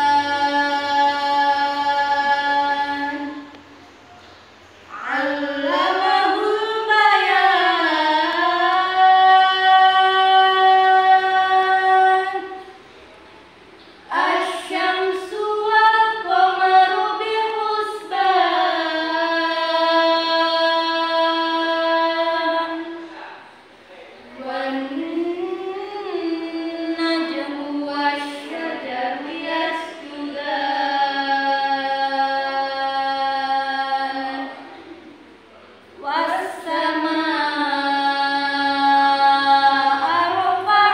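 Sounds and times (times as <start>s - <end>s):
young female voice reciting melodically: 4.9s - 12.8s, 14.1s - 23.0s, 24.4s - 35.0s, 36.0s - 40.9s.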